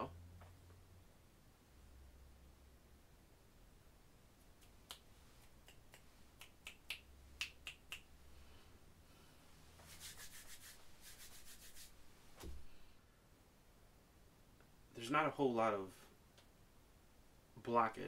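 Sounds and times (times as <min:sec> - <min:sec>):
soft thump: 0:12.4 - 0:12.7.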